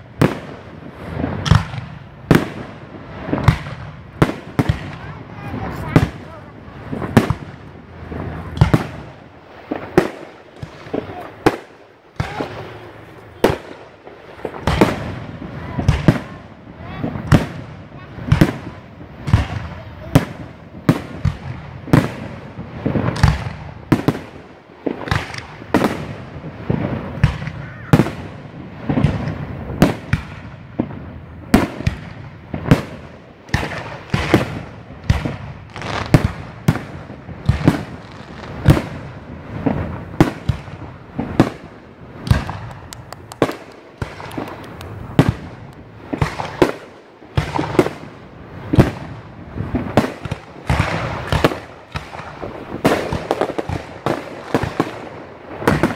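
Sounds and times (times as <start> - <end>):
firework crackling: 0.0 - 55.9
firework shells bursting: 39.6 - 47.9.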